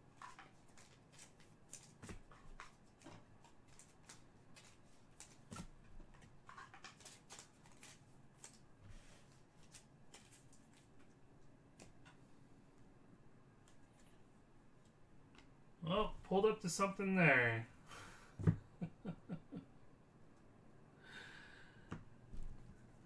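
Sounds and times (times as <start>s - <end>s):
trading cards clicking and rustling: 0.1s - 8.6s.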